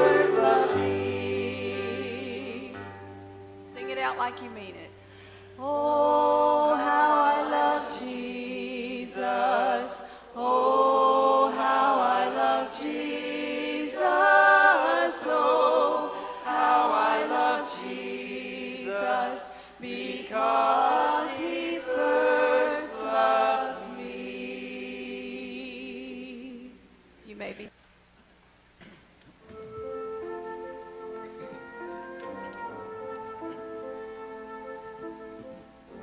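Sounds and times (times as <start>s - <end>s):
church choir singing: 0.0s - 3.4s, 5.5s - 26.8s
acoustic guitar: 0.0s - 5.8s.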